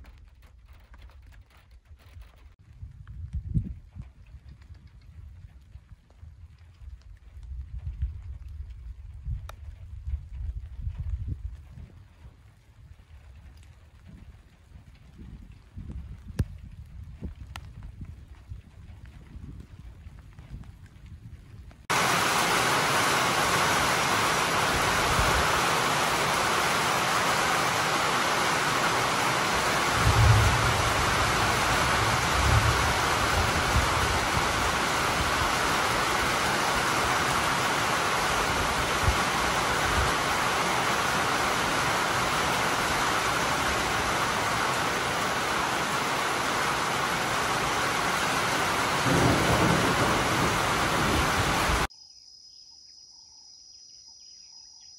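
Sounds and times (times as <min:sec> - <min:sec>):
steady rain hiss: 0:21.8 - 0:51.9
low thunder rumbles: 0:21.9 - 0:51.9.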